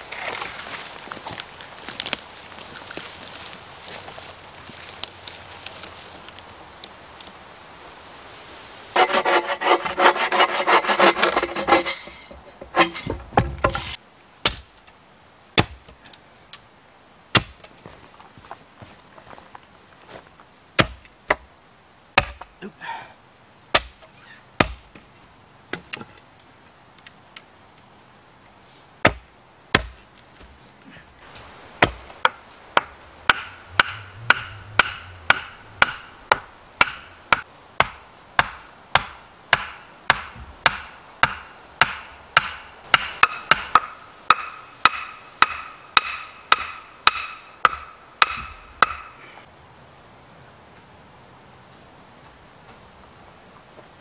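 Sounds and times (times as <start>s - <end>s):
hand tool striking wood: 9.0s - 14.7s, 29.0s - 30.0s, 31.8s - 49.1s.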